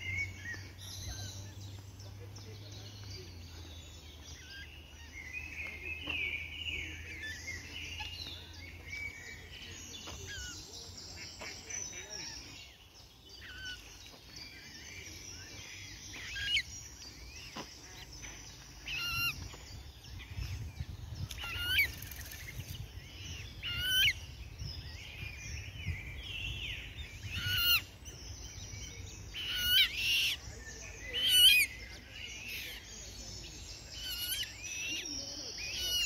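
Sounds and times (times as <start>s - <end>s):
bird calling: 13.4s - 19.6s, 27.3s - 36.0s.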